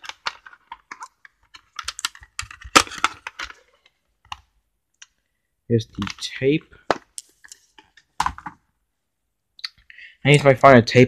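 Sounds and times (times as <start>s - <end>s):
plastic cassette clicks and rattles: 0.0s - 5.2s.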